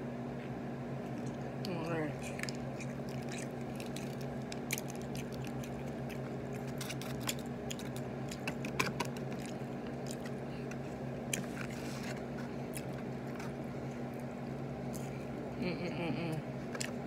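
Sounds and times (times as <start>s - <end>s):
steady low hum: 0.0s - 17.0s
person chewing: 1.0s - 15.3s, 16.3s - 17.0s.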